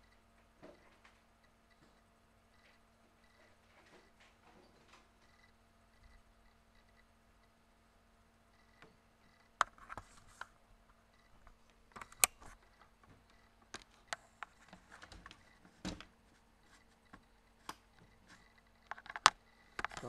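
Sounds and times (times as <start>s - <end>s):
small parts and tools clicking: 17.0s - 20.0s.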